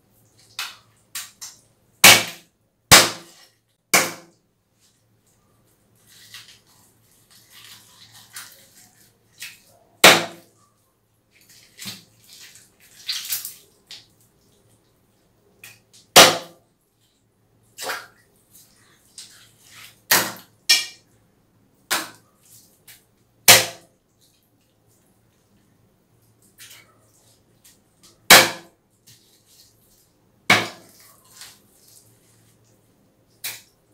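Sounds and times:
knife chopping on wooden block: 4.0 - 4.3
knife cutting and scraping flesh: 6.0 - 10.4, 30.5 - 32.4.

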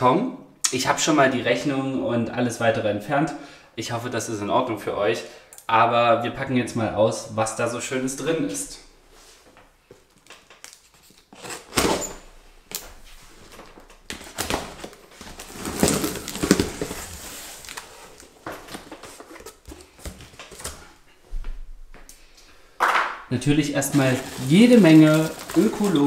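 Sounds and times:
packing tape tearing off box: 10.6 - 12.8, 14.1 - 20.8, 23.8 - 26.0
cardboard flaps folded open: 13.4 - 20.8, 23.8 - 26.0.

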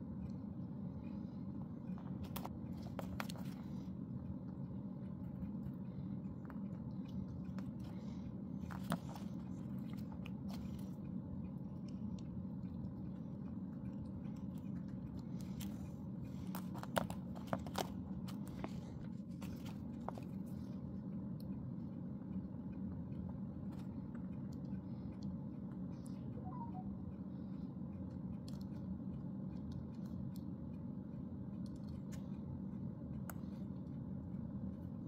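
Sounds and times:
low background hum: 0.0 - 35.0.

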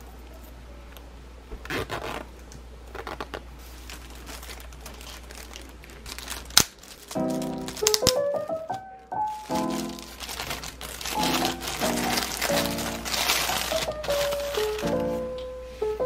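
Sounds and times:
plastic packaging crinkling: 2.9 - 15.3.

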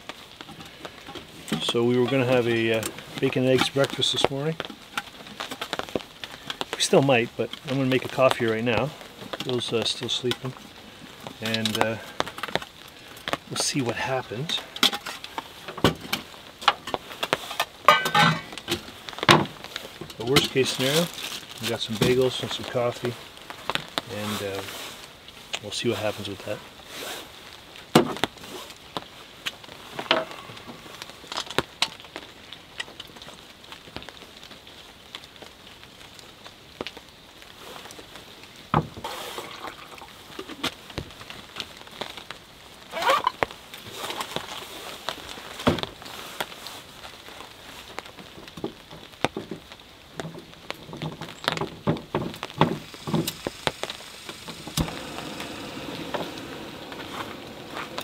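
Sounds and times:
plastic bag rustling: 13.4 - 27.7, 50.5 - 58.0
cooking gear clinking: 17.8 - 18.6.

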